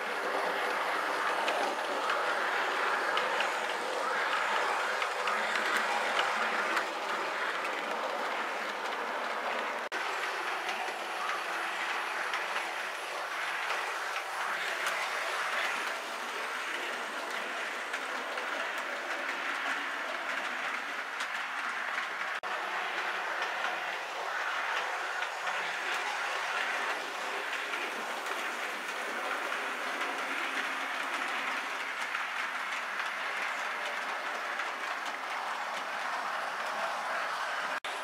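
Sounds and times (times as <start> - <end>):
model train rolling on track: 0.0 - 38.0
wheels clicking over rail joints: 0.0 - 38.0.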